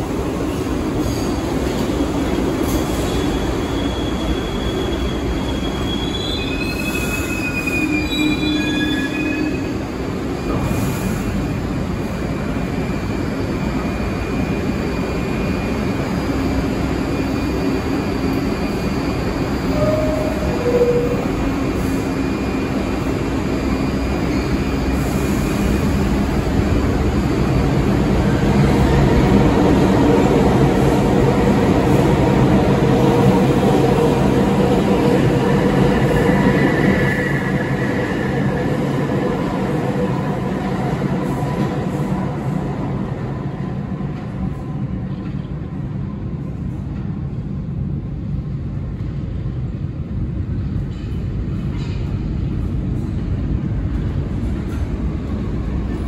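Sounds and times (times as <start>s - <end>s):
train wheels rumbling on rail: 0.0s - 56.0s
high wheel squeals: 3.0s - 9.8s.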